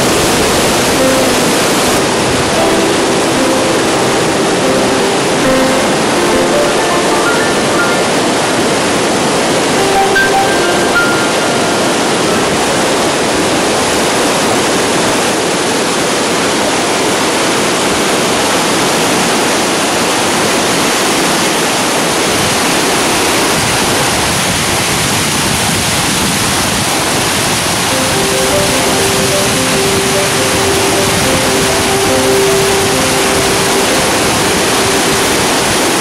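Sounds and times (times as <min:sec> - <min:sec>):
faint held musical notes: 0:00.0 - 0:13.4, 0:27.9 - 0:36.0
waterfall rushing: 0:00.0 - 0:24.5, 0:26.7 - 0:36.0.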